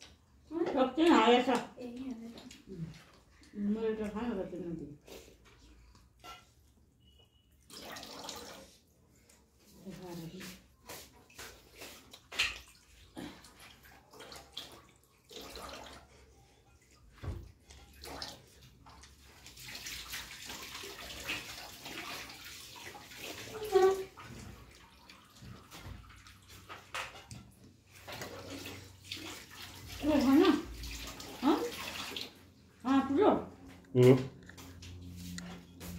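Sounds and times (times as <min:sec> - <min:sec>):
wet chewing and mouth noises: 0:01.8 - 0:04.2, 0:10.4 - 0:15.2, 0:33.6 - 0:35.9.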